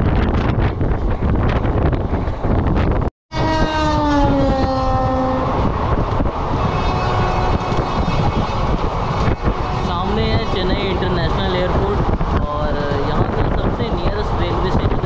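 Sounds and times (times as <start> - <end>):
train rumbling: 0.0 - 15.0
train horn: 3.3 - 5.6, 6.5 - 9.9.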